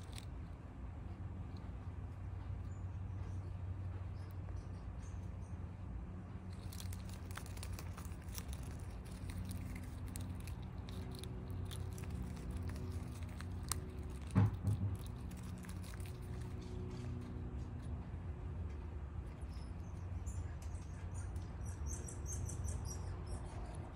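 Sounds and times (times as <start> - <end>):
chipmunk gnawing shell clicks: 0.0 - 0.3, 6.5 - 17.4
steady low hum: 0.0 - 23.9.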